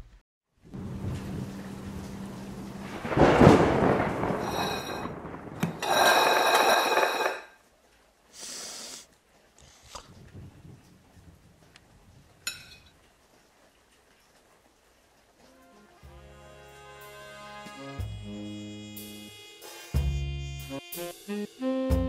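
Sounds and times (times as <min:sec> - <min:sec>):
rain: 0:00.6 - 0:17.9
low engine hum: 0:00.7 - 0:02.8
thunder rumbling: 0:00.7 - 0:07.3, 0:10.1 - 0:12.5.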